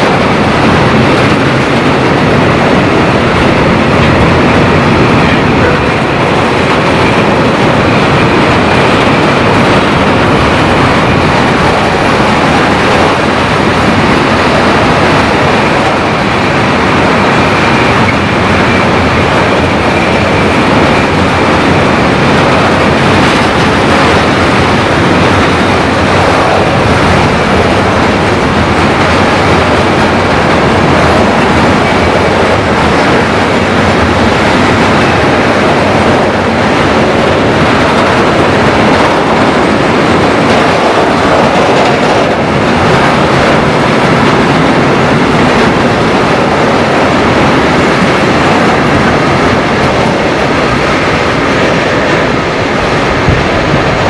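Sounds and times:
freight train wheels on rails: 0:00.0 - 0:54.0.

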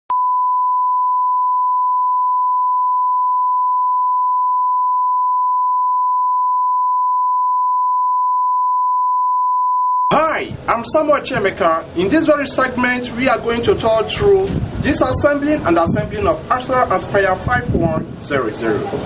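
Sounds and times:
steady pure test tone: 0:00.1 - 0:10.7.

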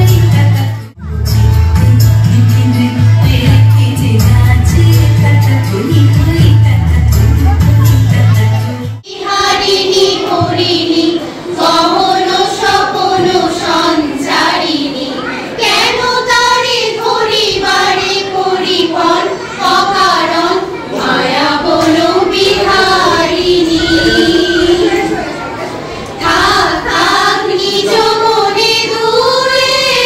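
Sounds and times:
women singing in unison: 0:09.0 - 0:25.2, 0:26.2 - 0:30.0.

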